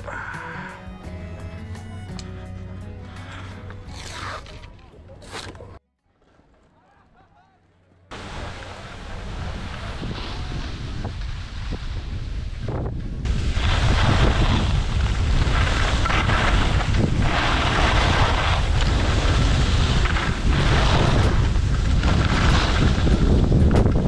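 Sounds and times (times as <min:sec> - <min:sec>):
wind buffeting microphone: 0:08.2 - 0:24.0.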